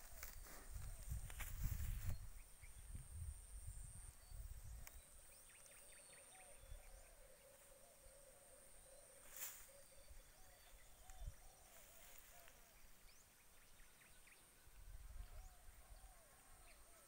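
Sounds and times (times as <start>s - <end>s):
faint chirping call: 0.0s - 17.0s.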